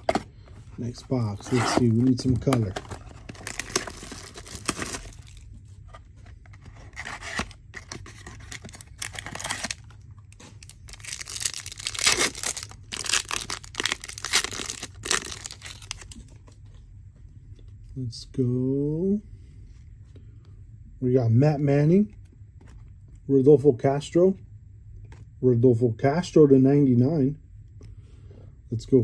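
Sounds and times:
packaging tearing and crinkling: 0:01.2 - 0:05.4, 0:06.8 - 0:16.2.

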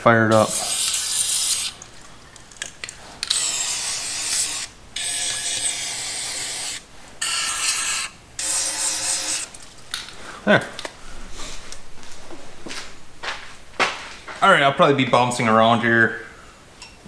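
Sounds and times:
aerosol spray hissing: 0:00.3 - 0:01.8.

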